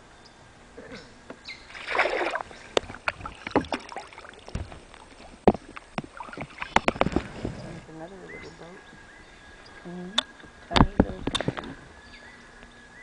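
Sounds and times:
paddle splashing water: 0:01.7 - 0:07.6
paddles knocking against hull: 0:01.8 - 0:07.6.

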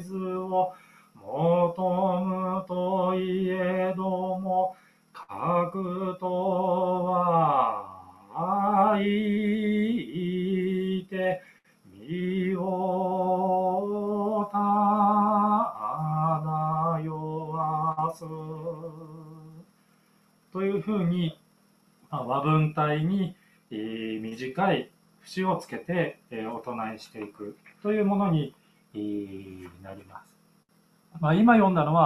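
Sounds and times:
man chanting: 0:00.0 - 0:11.4, 0:12.0 - 0:19.6, 0:20.6 - 0:21.4, 0:22.1 - 0:30.3
breaths: 0:00.7 - 0:01.2, 0:04.7 - 0:05.2, 0:11.4 - 0:11.9, 0:19.7 - 0:20.4, 0:23.3 - 0:23.7, 0:28.6 - 0:28.9.

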